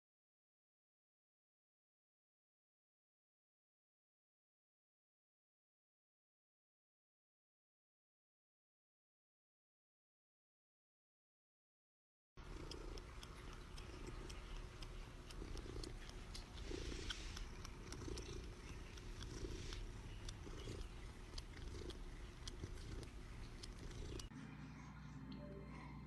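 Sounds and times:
cat purring: 0:12.4 - 0:26.0.

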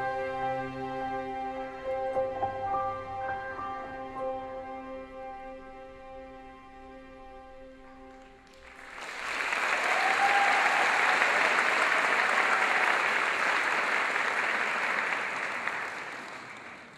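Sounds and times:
audience applause: 0:08.4 - 0:16.9.

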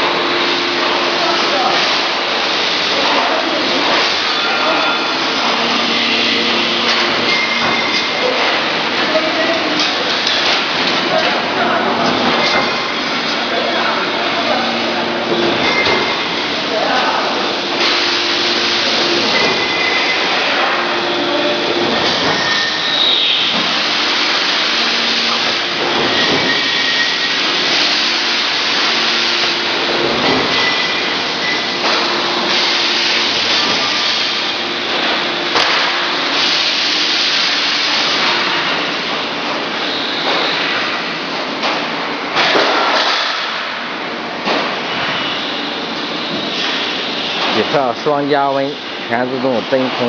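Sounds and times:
machinery rushing noise: 0:00.0 - 0:39.1.

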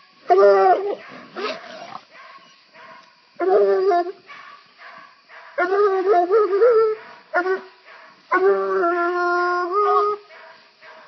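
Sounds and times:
hounds baying: 0:00.3 - 0:11.0
dog barking: 0:00.8 - 0:03.2, 0:04.2 - 0:05.7, 0:06.9 - 0:08.4, 0:09.8 - 0:11.0.

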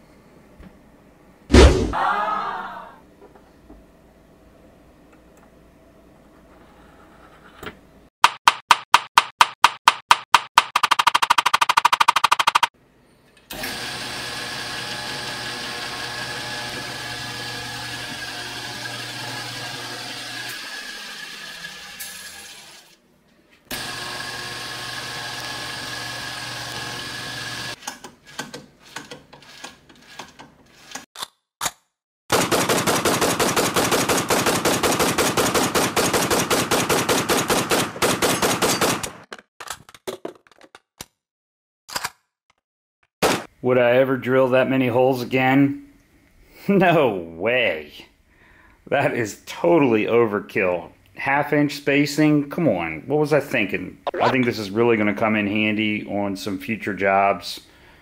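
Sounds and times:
rattle of fast clicks: 0:10.6 - 0:12.7
drill press motor humming: 0:13.5 - 0:21.6, 0:23.7 - 0:27.8.

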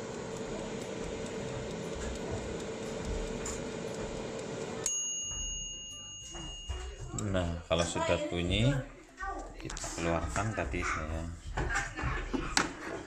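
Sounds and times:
air fryer fan whirring: 0:00.0 - 0:08.9
timer bell ringing: 0:04.8 - 0:08.1.

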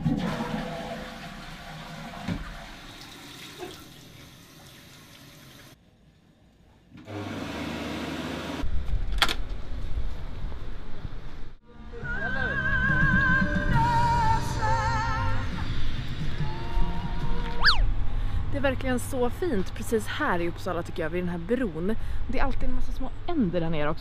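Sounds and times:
toilet flushing: 0:00.0 - 0:05.8
electric hand dryer whirring: 0:07.1 - 0:08.7.

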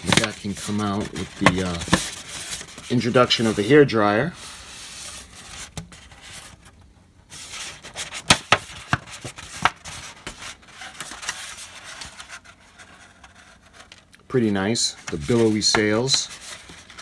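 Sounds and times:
plastic sheets rubbing and crackling: 0:00.0 - 0:06.6, 0:14.7 - 0:17.0.

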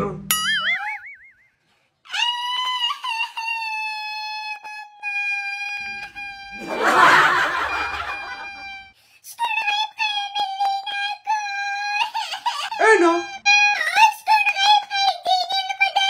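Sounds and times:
person wailing and sobbing: 0:05.8 - 0:08.9, 0:11.3 - 0:13.7.

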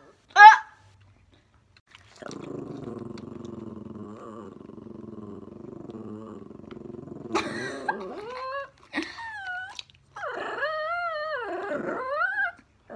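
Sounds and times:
animal growling low: 0:02.2 - 0:08.4
animal whining: 0:02.5 - 0:12.9.

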